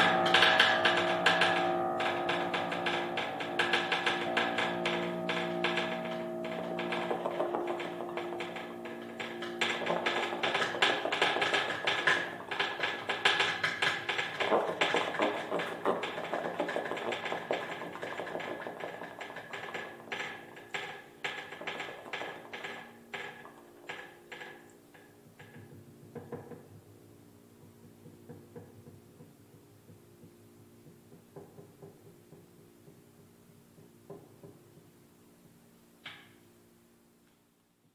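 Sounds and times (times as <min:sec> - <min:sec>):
low ringing tones: 0:00.0 - 0:23.8
percussive piano strikes: 0:00.0 - 0:26.9.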